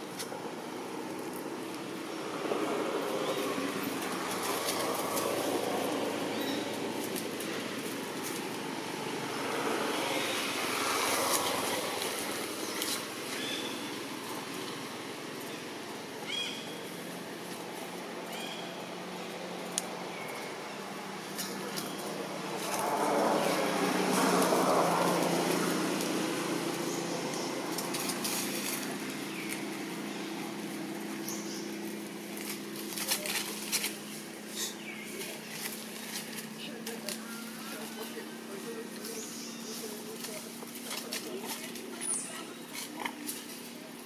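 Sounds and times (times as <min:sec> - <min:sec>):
motor vehicle passing by: 0:00.0 - 0:44.0
passing noise: 0:18.9 - 0:34.5.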